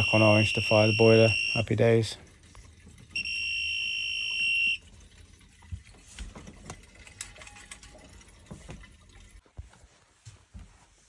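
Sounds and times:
voltage tester beeping: 0.0 - 1.6.

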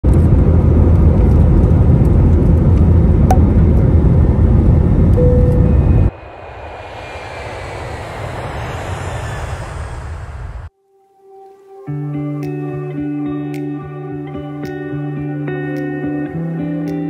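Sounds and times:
jet engine and cabin noise: 0.1 - 10.7
short tone: 5.2 - 6.2.

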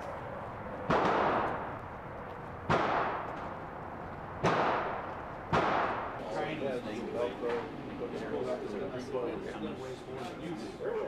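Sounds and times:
reverberant gunshots: 0.7 - 6.3.

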